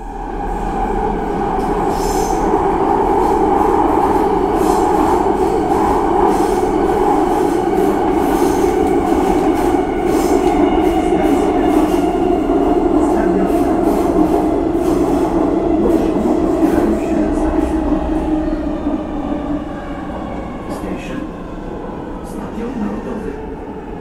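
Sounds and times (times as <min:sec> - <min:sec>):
subway train rumbling: 0:00.0 - 0:24.0.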